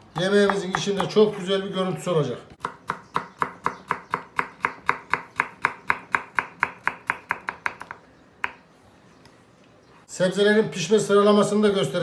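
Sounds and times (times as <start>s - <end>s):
knife chopping on wooden board: 0.2s - 1.5s, 2.6s - 8.6s.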